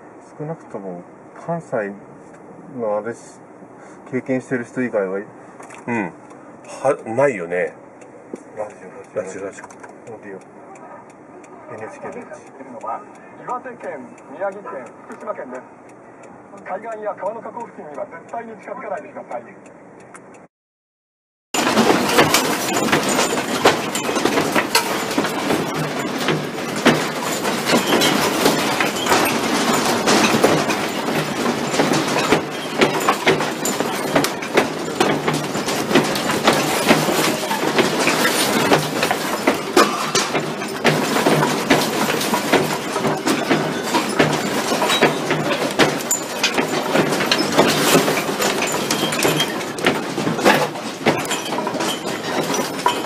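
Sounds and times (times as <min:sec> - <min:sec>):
house contents rattling in earthquake: 0:21.6 - 0:53.0.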